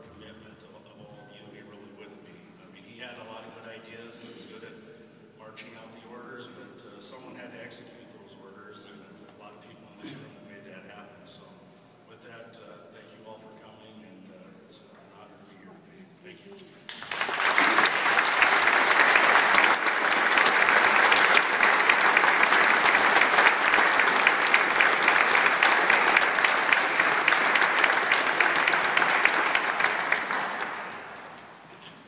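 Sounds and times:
audience applauding: 16.9s - 32.0s.

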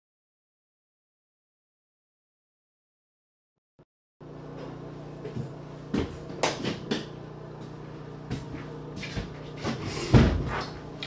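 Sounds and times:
steady low hum: 4.2s - 11.0s.

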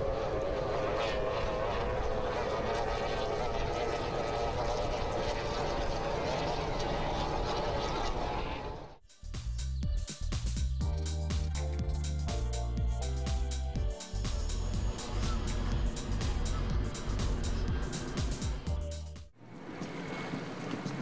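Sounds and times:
outboard engine high whine: 0.0s - 9.0s, 13.0s - 21.0s
music: 9.0s - 19.3s.

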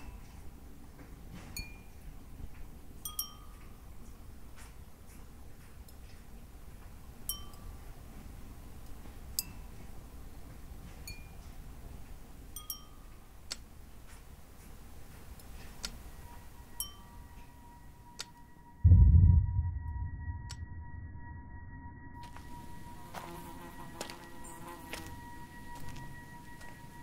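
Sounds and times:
steady high tone: 16.4s - 27.0s
low rumble: 18.6s - 22.8s
loud low boom: 18.8s - 22.2s.

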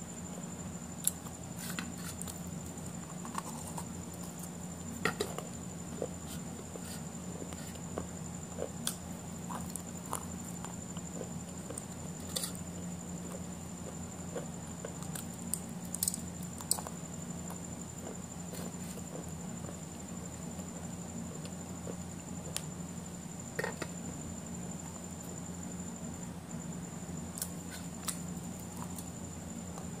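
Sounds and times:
electrical hum: 0.0s - 30.0s
faint high whine: 0.0s - 30.0s
person chewing food: 5.1s - 12.6s, 13.3s - 15.3s.

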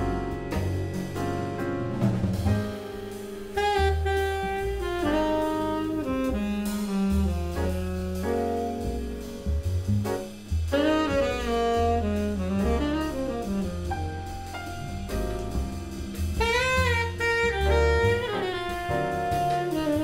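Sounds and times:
double bass: 0.0s - 20.0s
drum kit: 0.0s - 20.0s
piano: 0.0s - 20.0s
tenor saxophone: 3.5s - 9.4s, 10.7s - 15.5s, 16.4s - 20.0s.

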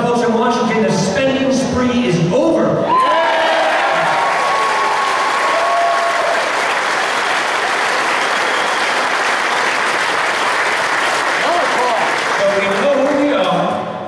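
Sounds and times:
held shout: 2.8s - 6.5s
crowd applauding: 2.9s - 13.7s.

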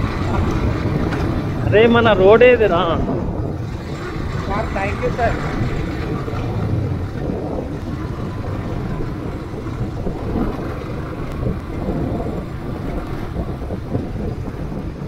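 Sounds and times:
motorcycle running: 0.0s - 15.0s
wind buffeting microphone: 0.0s - 15.0s.

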